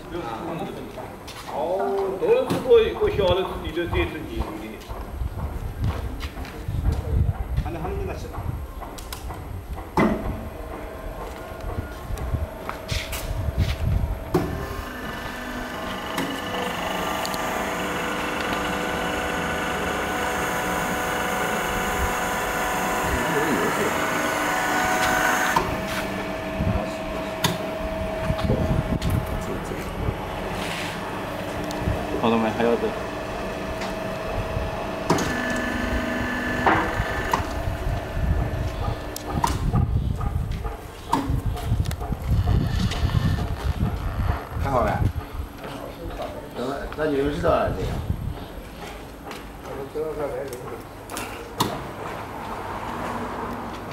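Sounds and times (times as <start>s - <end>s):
knocks: 7.8s - 12.9s
motor and pump humming: 10.0s - 40.0s
high pitched machine whine: 10.4s - 39.6s.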